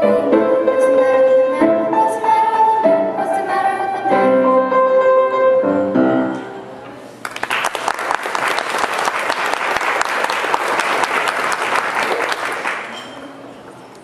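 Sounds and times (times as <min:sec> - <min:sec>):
piano and girls singing duet: 0:00.0 - 0:06.6
audience applause: 0:07.2 - 0:12.9.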